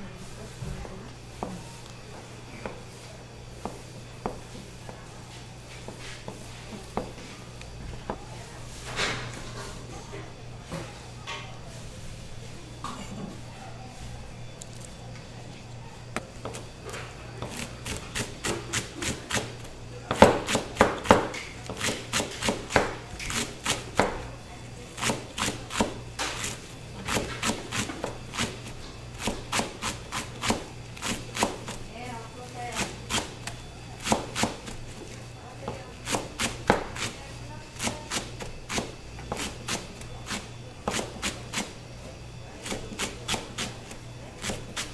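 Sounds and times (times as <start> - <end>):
steady low hum: 0.0 - 44.9
knife chopping on plastic board: 20.1 - 24.2, 25.0 - 31.8, 34.0 - 34.8, 35.6 - 37.2, 37.8 - 41.7, 42.6 - 43.8, 44.4 - 44.9.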